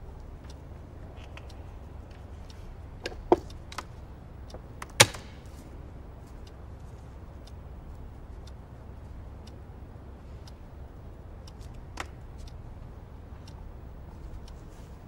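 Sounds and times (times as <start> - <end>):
chess clock pressed: 0.0 - 5.7
low steady hum: 0.0 - 15.0.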